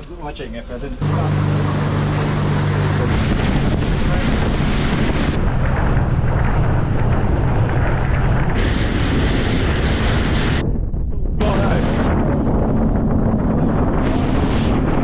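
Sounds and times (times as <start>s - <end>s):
water rushing along hull: 1.0s - 8.7s
boat engine drone: 1.0s - 10.7s, 11.4s - 15.0s
wind buffeting microphone: 1.4s - 15.0s.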